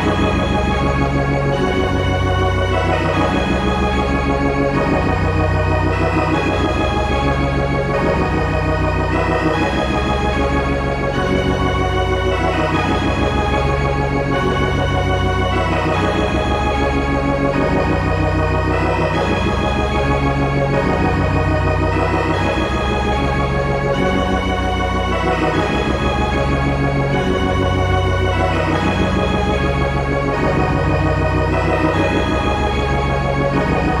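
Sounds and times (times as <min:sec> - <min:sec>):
organ-like synthesizer chords: 0:00.0 - 0:34.0
low bass line: 0:16.2 - 0:34.0.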